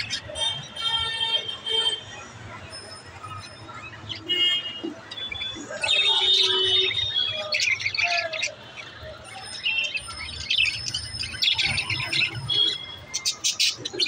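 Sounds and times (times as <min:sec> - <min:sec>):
budgerigars chirping: 0:06.5 - 0:14.0.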